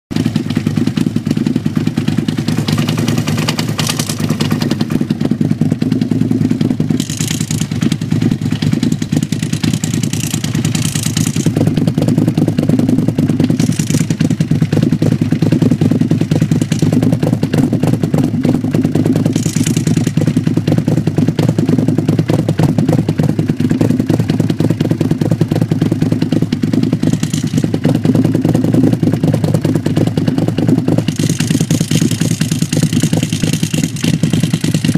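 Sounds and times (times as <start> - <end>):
motorcycle engine idling: 0.1 - 34.9.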